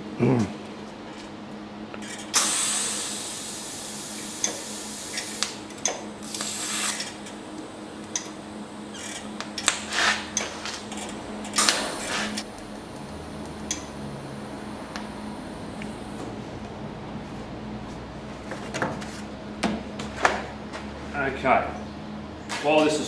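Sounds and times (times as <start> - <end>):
welding arc buzzing and crackling: 1.9 - 18.2.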